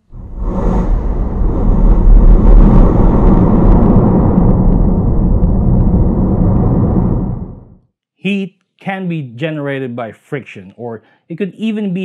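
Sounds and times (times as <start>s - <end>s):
explosion low rumble: 0.0s - 7.9s.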